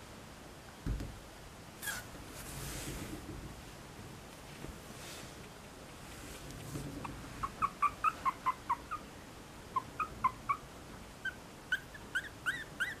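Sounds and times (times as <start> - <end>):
puppy whimpering in high squeaks: 1.8 - 2.1, 7.4 - 9.1, 9.8 - 10.6, 11.2 - 13.0.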